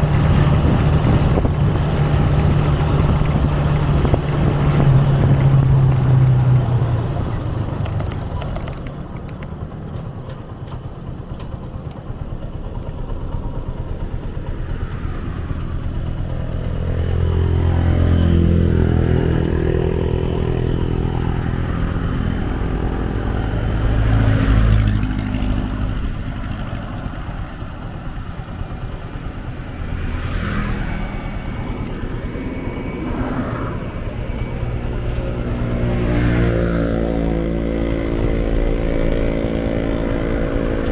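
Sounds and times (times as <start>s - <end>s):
wind rumble on microphone: 0.0s - 6.5s
motorcycle engine slowing and idling: 0.0s - 33.0s, 33.7s - 40.9s.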